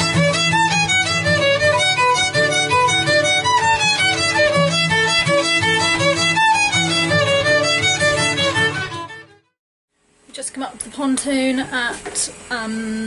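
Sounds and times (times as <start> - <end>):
strummed acoustic guitar: 0.0 - 9.5
fiddle playing quick melody: 0.0 - 9.6.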